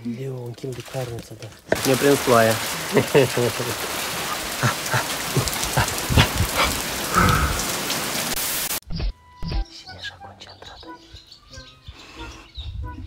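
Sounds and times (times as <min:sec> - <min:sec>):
rain taps: 0:00.0 - 0:08.8
steady rain falling: 0:00.0 - 0:08.8.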